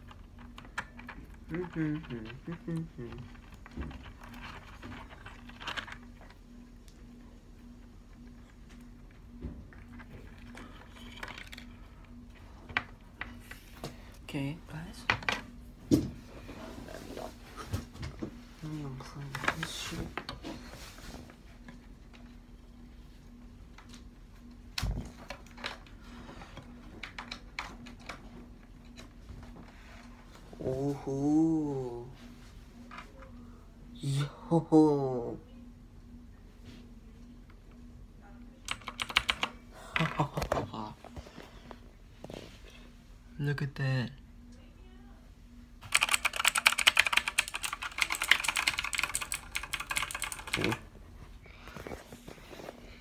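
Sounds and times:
mechanical keyboard keys clattering: 0:00.0 - 0:06.0, 0:09.7 - 0:11.7, 0:38.7 - 0:40.2, 0:45.9 - 0:50.8
faint steady hum: 0:00.0 - 0:53.0.

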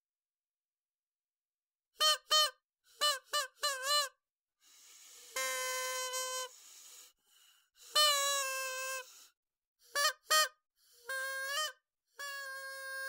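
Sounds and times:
party horn honks: 0:02.0 - 0:04.1, 0:05.3 - 0:06.6, 0:07.8 - 0:09.1, 0:09.9 - 0:13.0.

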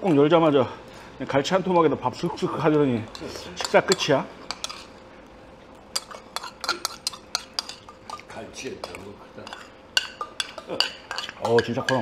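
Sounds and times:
metal spoon clinking on bowl: 0:02.4 - 0:04.9, 0:05.9 - 0:12.0.

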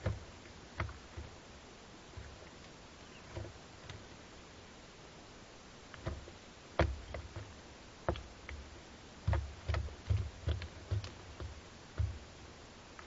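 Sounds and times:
knocks on wooden nest box: 0:06.0 - 0:07.5.

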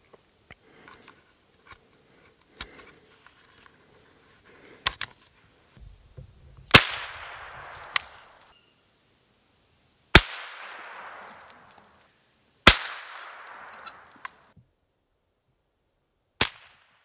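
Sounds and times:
rifle shot echoing: 0:05.8 - 0:08.4, 0:10.1 - 0:11.7, 0:12.7 - 0:14.2
metallic rifle loading clicks: 0:13.1 - 0:14.4.

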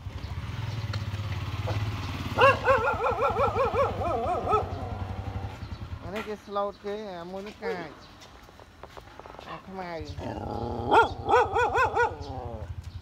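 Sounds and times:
small engine idling: 0:00.0 - 0:06.2.

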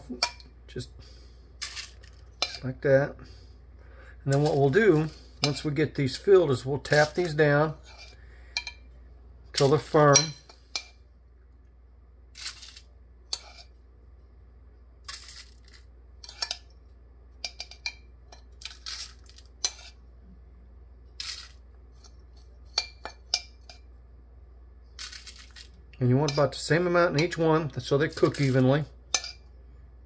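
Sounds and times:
metal spoon scraping ceramic dish: 0:01.6 - 0:02.6, 0:06.9 - 0:08.8, 0:12.4 - 0:13.7, 0:16.2 - 0:16.6, 0:17.5 - 0:20.0, 0:28.2 - 0:29.4.

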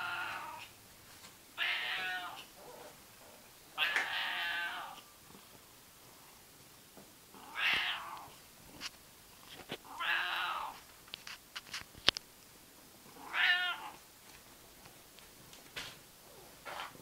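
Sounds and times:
cat meowing: 0:00.0 - 0:00.7, 0:01.6 - 0:02.5, 0:03.8 - 0:05.0, 0:07.4 - 0:08.3, 0:09.9 - 0:10.8, 0:13.2 - 0:14.0.

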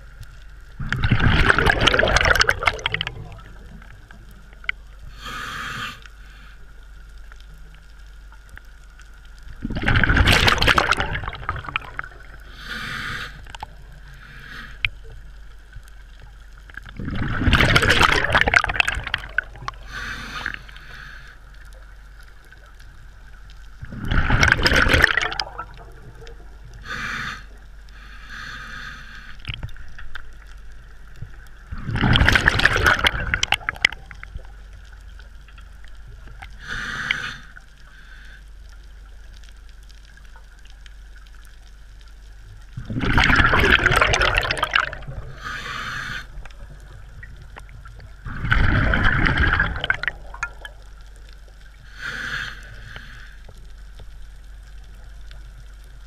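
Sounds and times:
exhaled bubbles gurgling: 0:00.0 - 0:05.8, 0:09.1 - 0:27.7, 0:29.3 - 0:38.0, 0:38.9 - 0:56.0
regulator breaths underwater: 0:05.1 - 0:06.7, 0:10.6 - 0:15.0, 0:17.0 - 0:21.5, 0:26.8 - 0:29.7, 0:36.5 - 0:38.6, 0:42.9 - 0:46.7, 0:51.8 - 0:53.6.

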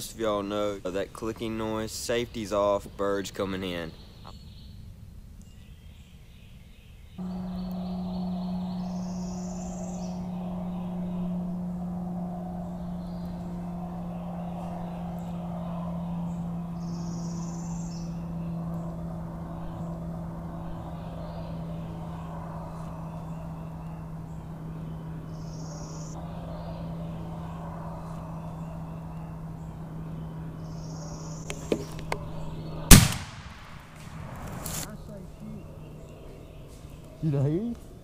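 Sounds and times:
steady low hum: 0:00.0 - 0:38.0
high bird chirps: 0:05.4 - 0:32.9
rapid ticking call: 0:07.2 - 0:22.1
shotgun blast: 0:32.9 - 0:34.4.

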